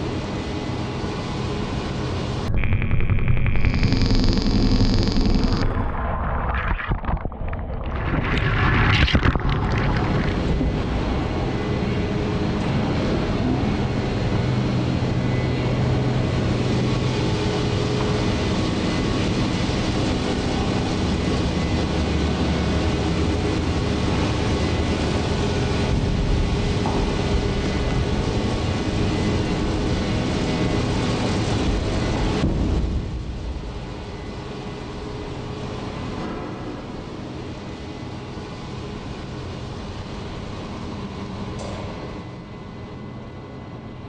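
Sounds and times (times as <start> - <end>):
factory machinery din: 2.5 - 14.9.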